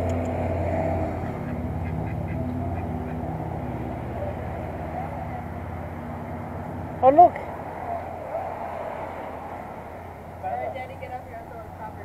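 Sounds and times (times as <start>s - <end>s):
ducks quacking: 1.2s - 5.6s.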